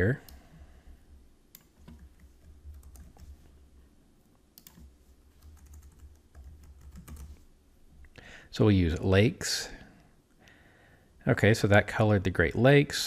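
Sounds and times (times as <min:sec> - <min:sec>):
low steady hum: 0:00.0 - 0:13.0
computer keyboard keystrokes: 0:01.5 - 0:03.4, 0:04.6 - 0:07.4.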